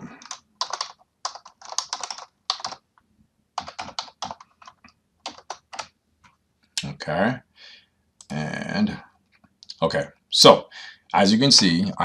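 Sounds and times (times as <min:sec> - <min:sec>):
typing on computer keyboard: 0:00.0 - 0:02.8, 0:03.6 - 0:06.0.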